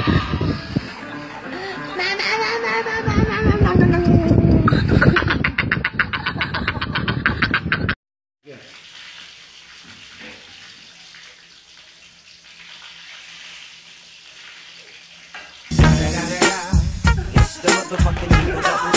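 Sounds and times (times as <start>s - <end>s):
loud music with strong beat: 15.7s - 18.9s.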